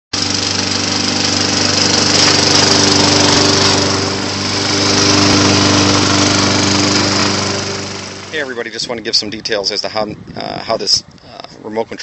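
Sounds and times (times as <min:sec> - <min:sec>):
lawn mower engine running: 0:00.1 - 0:09.6.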